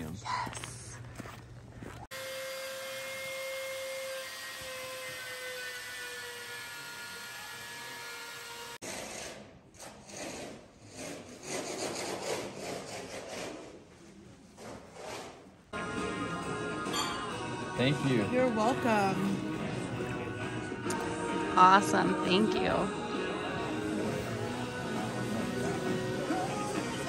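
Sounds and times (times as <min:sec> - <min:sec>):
power tool grinding ice: 0:02.1 - 0:13.0.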